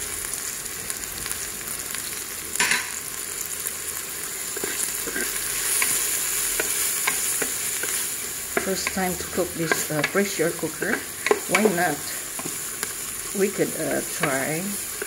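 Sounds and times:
food sizzling in hot oil: 0.0 - 15.0
wooden spatula scraping pot: 4.6 - 12.8.

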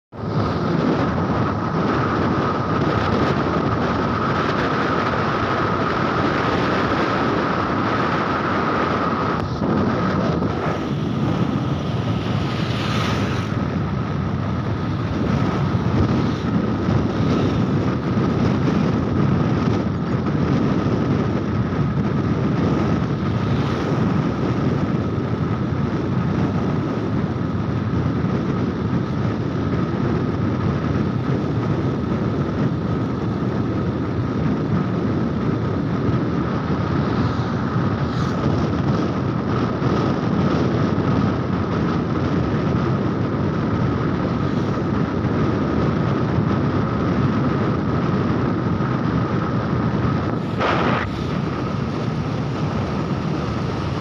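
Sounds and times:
tyres on road: 0.1 - 54.0
wind buffeting microphone: 0.1 - 54.0
thin steady whine: 0.2 - 29.0, 42.3 - 54.0
motorcycle engine running: 0.2 - 54.0.

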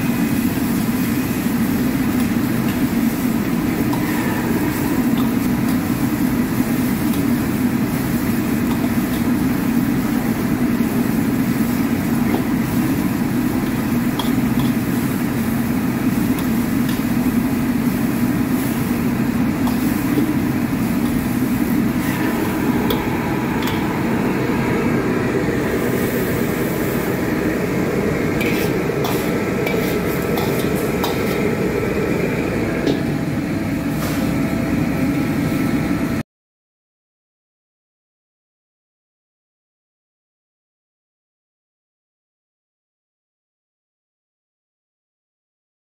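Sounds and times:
gas burner roaring: 0.0 - 36.2
metal ladle scraping a wok: 2.6 - 7.4, 19.6 - 24.9, 28.0 - 31.8.

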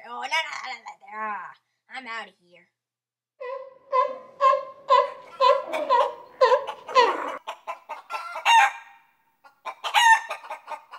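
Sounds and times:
higher louder squawks: 3.4 - 7.4
hen clucking: 3.4 - 10.9.

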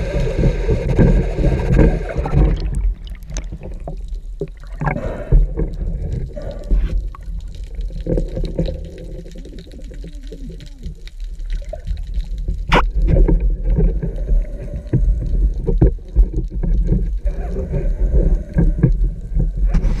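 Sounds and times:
underwater low rumble: 0.0 - 20.0
water swishes: 0.0 - 20.0.

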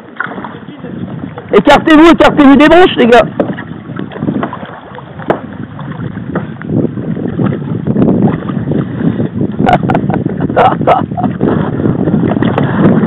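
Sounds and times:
river water splashing around kayak: 0.0 - 13.0
wind buffeting microphone: 0.0 - 13.0
sharp knocks: 5.2 - 5.5.

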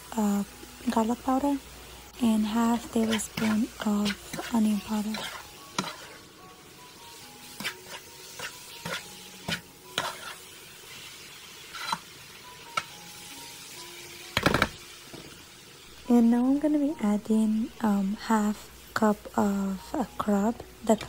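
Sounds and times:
spoon scraping frying pan: 2.7 - 6.3, 7.4 - 11.0, 11.6 - 12.1.

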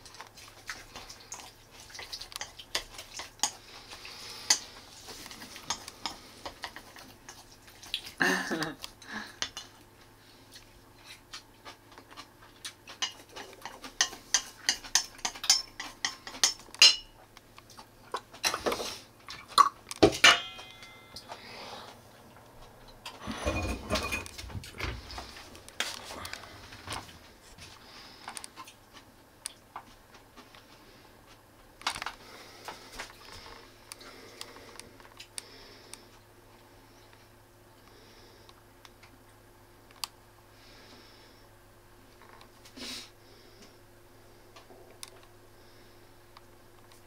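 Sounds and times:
dishes and utensils clinking: 12.9 - 17.1, 20.0 - 21.4, 23.2 - 25.0.

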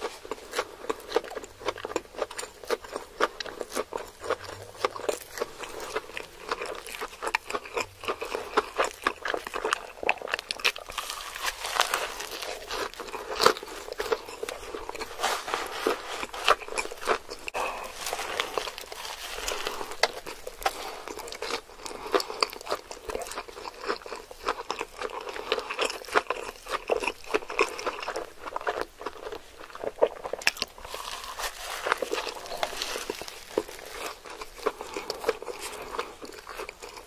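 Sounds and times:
crisp crackles: 8.4 - 23.5, 30.4 - 37.0.

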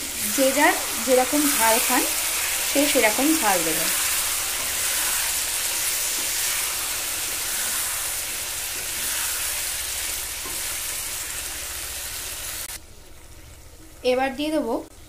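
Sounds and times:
food sizzling in oil: 0.0 - 15.0.

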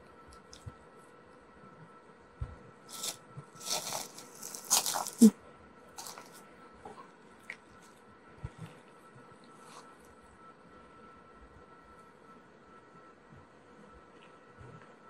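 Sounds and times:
crunching rustling noises: 2.9 - 5.3, 6.0 - 6.4
faint steady high tone: 7.8 - 15.0.

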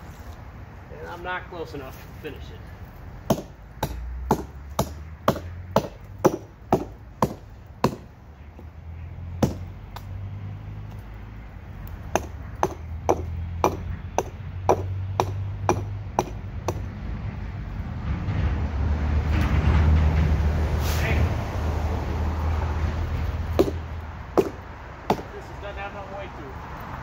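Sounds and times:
hatchet chopping wood: 3.3 - 8.1, 9.4 - 10.2, 12.0 - 16.9, 23.5 - 25.4.

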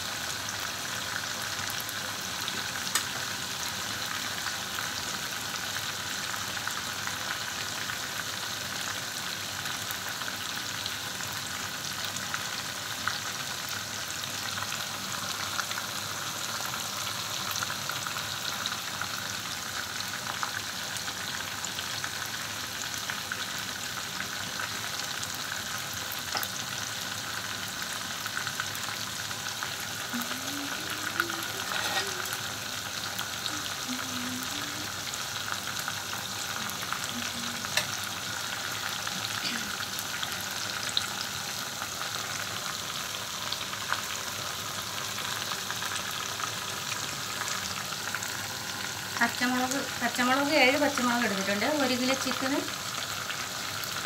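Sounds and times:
chicken sizzling in oil: 0.0 - 54.0
oil popping and crackling: 2.6 - 3.2.

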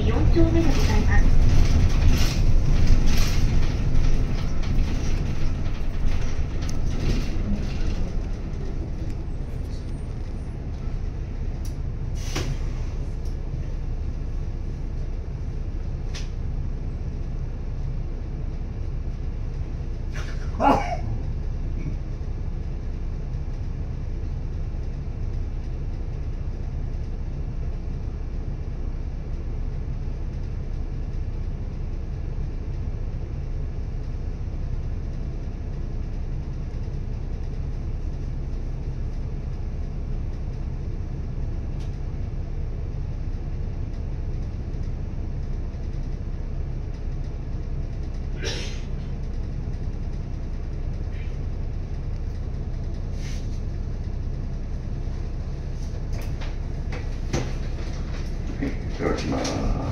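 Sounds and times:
bus engine idling: 0.0 - 59.9
air hiss: 12.2 - 12.8.

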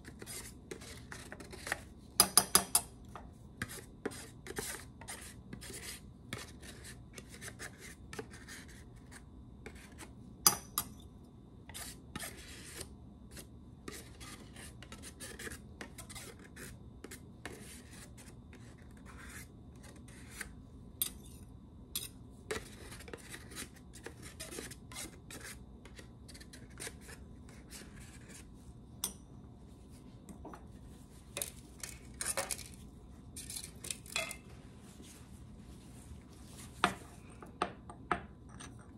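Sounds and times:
metal spatula scraping plastic: 22.0 - 28.5, 31.4 - 32.8.

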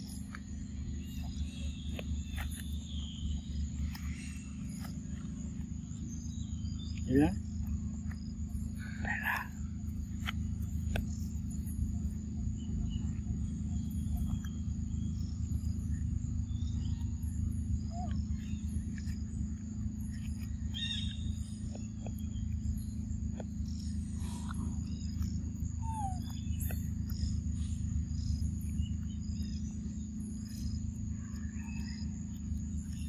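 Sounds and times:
constant low rumble: 0.0 - 33.0.

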